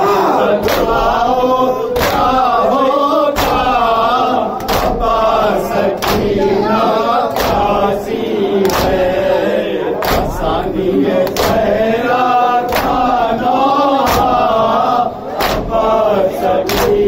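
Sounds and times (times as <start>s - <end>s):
men chanting a lament: 0.0s - 17.0s
chest-beating slaps: 0.6s - 1.2s, 1.9s - 6.5s, 7.3s - 9.2s, 10.0s - 11.8s, 12.6s - 13.3s, 14.0s - 17.0s.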